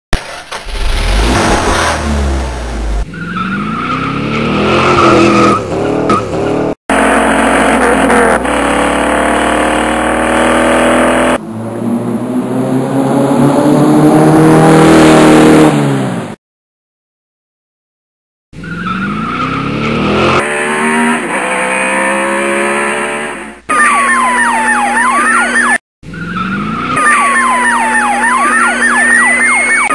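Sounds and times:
car engine revving: 0.2s - 15.8s, 18.9s - 23.6s
tire squeal: 3.1s - 6.8s, 18.6s - 21.9s.

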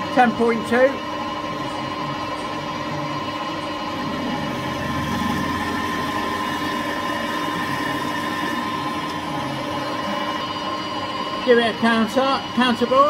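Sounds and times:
lathe humming: 0.0s - 13.0s
drill cutting metal: 3.4s - 13.0s.

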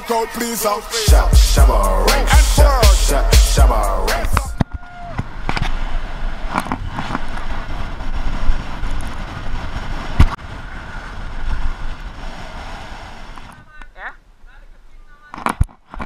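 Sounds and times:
wind rushing over microphone: 4.5s - 13.8s.

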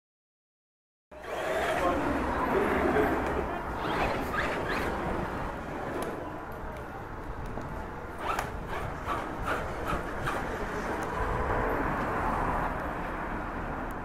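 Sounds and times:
toy car whirring: 3.7s - 5.2s, 8.2s - 11.1s.

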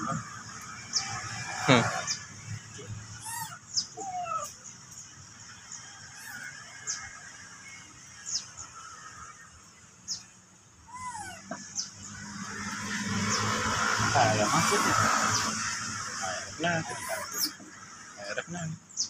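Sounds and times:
baby macaques chirping: 3.0s - 4.8s, 6.1s - 7.0s, 10.8s - 13.6s, 14.2s - 19.0s
macaque squeals: 3.1s - 4.6s, 6.2s - 6.6s, 10.9s - 11.7s, 14.4s - 18.4s.

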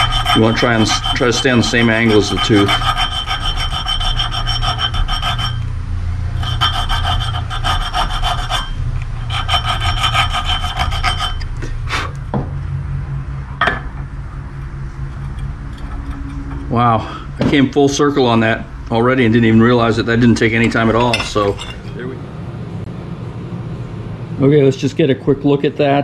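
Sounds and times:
file scraping metal gear: 0.0s - 5.7s, 6.3s - 11.6s, 15.0s - 16.8s, 19.7s - 22.1s
metal knocks and clinks: 20.6s - 22.0s.

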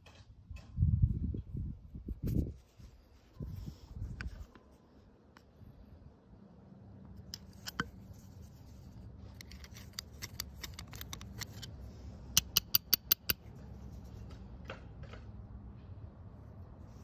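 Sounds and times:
metal tools clicking and scraping: 7.2s - 8.1s, 9.2s - 13.6s.

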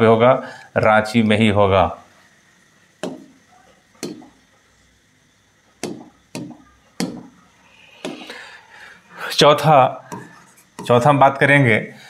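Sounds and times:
stylus tapping on a screen: 3.0s - 3.3s, 4.0s - 4.3s, 5.8s - 7.3s.

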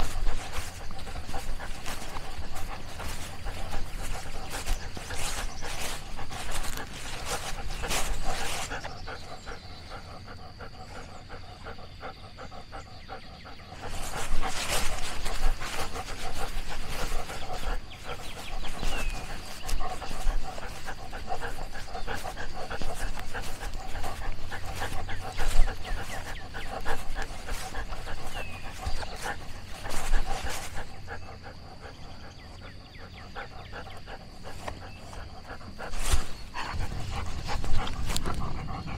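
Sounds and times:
dog panting: 0.0s - 38.9s.

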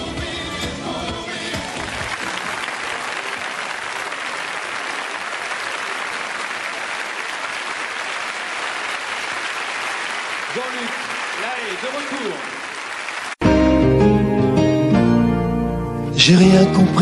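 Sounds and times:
band music: 0.0s - 2.9s, 13.4s - 17.0s
audience applauding: 1.3s - 13.5s.

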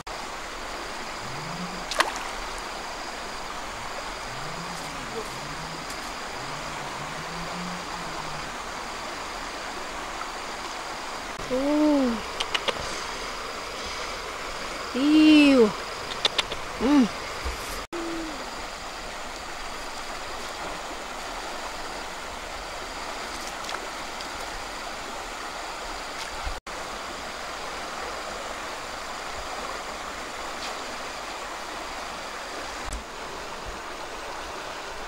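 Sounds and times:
fast-flowing river rushing: 0.0s - 17.5s.

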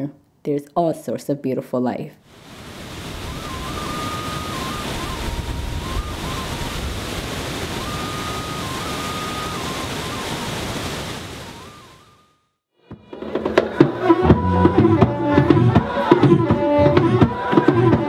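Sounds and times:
flowing river water: 2.3s - 12.2s
faint thin whistle: 3.1s - 7.0s, 7.6s - 10.6s, 11.4s - 12.6s.

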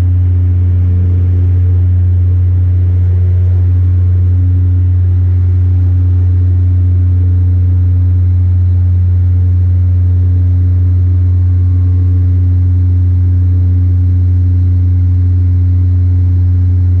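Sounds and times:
propeller drone inside cabin: 0.0s - 17.0s.

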